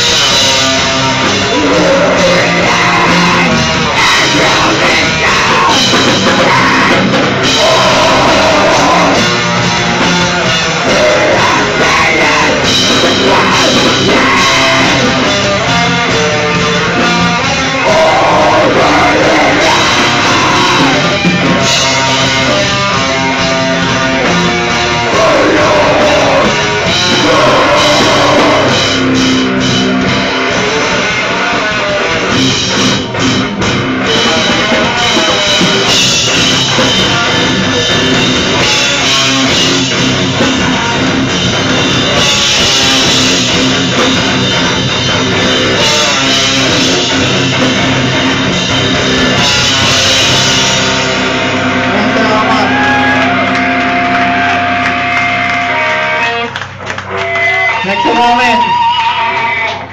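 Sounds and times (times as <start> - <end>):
heavy metal band playing: 0.0 - 59.9.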